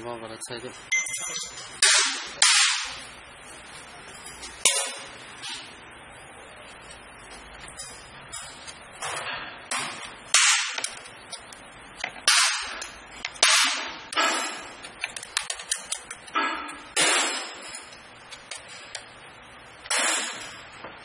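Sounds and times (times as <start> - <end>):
metallic clinks and knocks: 0.9 - 1.8.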